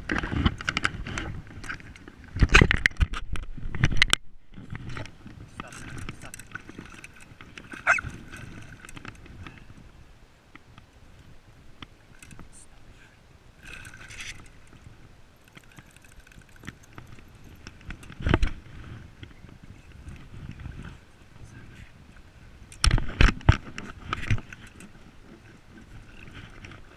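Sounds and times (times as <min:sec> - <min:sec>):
water sloshing: 0:15.4 - 0:17.6.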